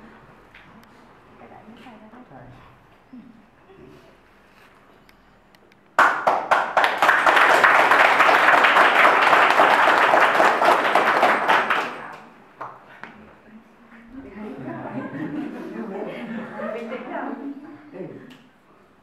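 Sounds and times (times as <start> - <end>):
crowd applauding: 6.0 - 12.4.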